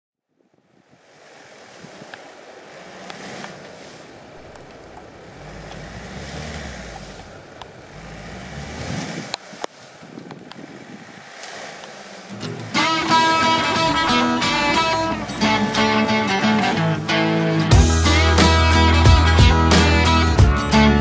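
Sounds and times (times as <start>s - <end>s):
tyres churning snow: 0.7s - 21.0s
low engine rumble: 2.0s - 21.0s
sharp knocks: 12.3s - 13.2s.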